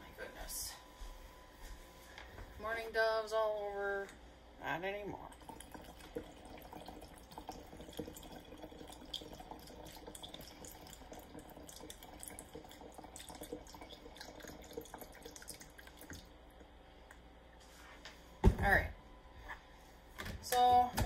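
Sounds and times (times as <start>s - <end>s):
liquid pouring through funnel: 5.1s - 16.8s.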